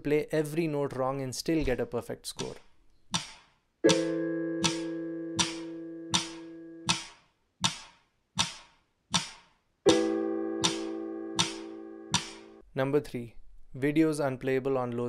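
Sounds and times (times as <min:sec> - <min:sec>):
piano chords: 0:03.8 - 0:07.0, 0:09.9 - 0:12.6
metronome click: 0:03.8 - 0:07.8, 0:09.9 - 0:12.6.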